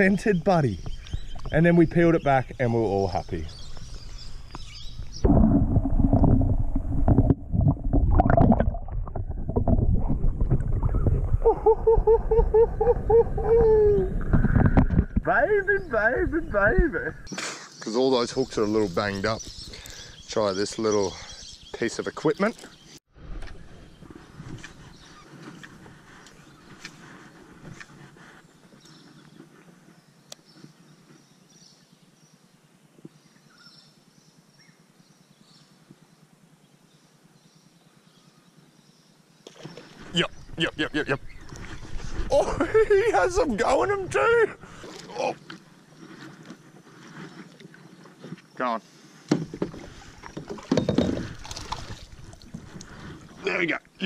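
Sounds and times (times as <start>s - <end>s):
creek ambience: 0.0s - 31.1s, 38.3s - 54.0s
water sloshing and gurgling: 3.2s - 15.3s, 39.4s - 43.6s, 44.5s - 48.4s, 49.3s - 53.5s.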